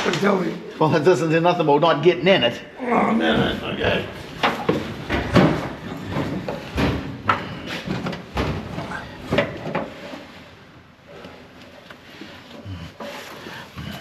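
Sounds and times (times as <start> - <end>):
low talk: 2.3 - 4.2
knocks and clunks of work: 3.4 - 10.3.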